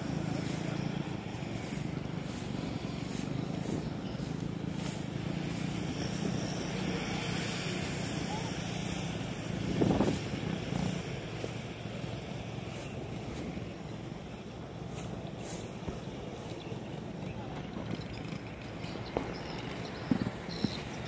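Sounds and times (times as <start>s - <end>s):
dirt bike engine running: 0.0s - 21.0s.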